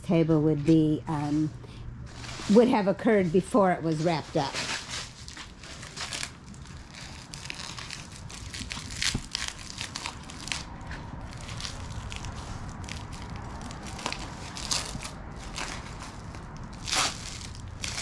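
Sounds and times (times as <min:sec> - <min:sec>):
packing wrap crinkling and tearing: 0:04.5 - 0:18.0.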